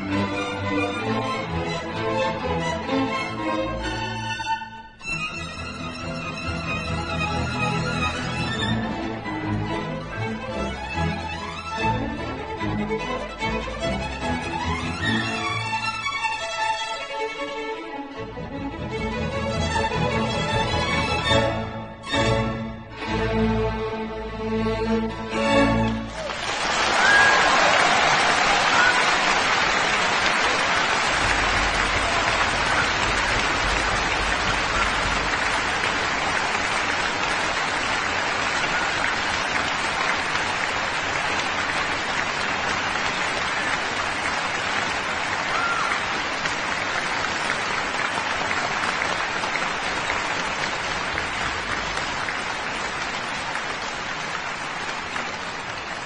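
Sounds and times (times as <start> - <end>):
audience applauding: 25.8 - 56.0.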